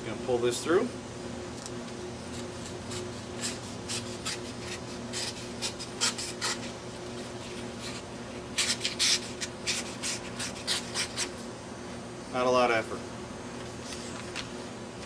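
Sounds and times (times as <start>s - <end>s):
knife slicing paper: 2.9s - 6.7s, 7.8s - 11.4s.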